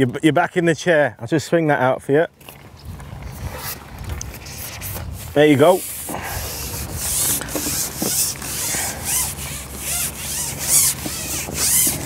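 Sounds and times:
fishing pole sections rubbing swishes: 0:03.3 - 0:12.0.

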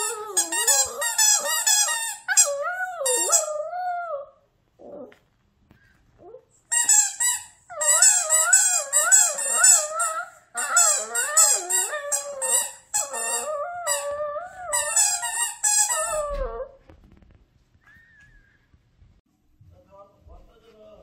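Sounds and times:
squeaky toy ball squeaking: 0:00.0 - 0:03.9, 0:06.7 - 0:16.7.

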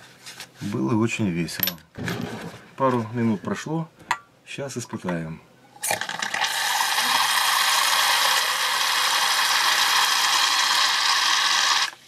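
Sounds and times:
soda siphon hissing: 0:05.8 - 0:12.0.

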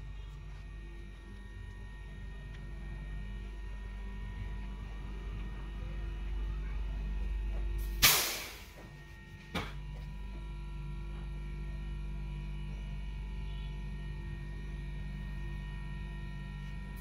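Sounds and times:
refrigerator compressor hum: 0:00.0 - 0:17.0
sudden loud burst of noise: 0:07.8 - 0:08.8
sharp click: 0:08.0 - 0:08.6.

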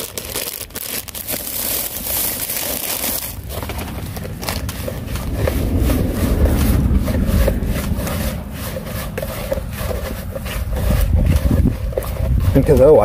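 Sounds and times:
hands kneading paste in a bowl: 0:01.2 - 0:13.0
low rumble: 0:03.3 - 0:12.9.

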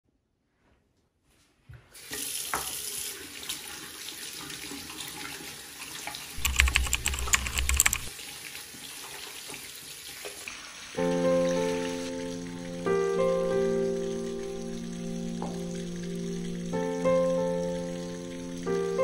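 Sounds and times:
sharp clicks and clatter: 0:06.4 - 0:08.1.

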